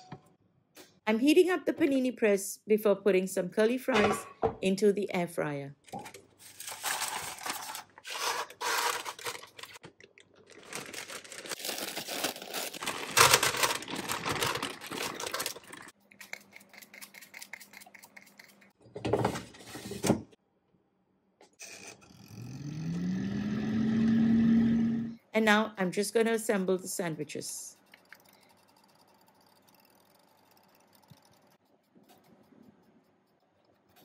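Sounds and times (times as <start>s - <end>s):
paper and plastic rustling: 6.0s - 15.9s
snack bag crinkling: 6.4s - 18.0s.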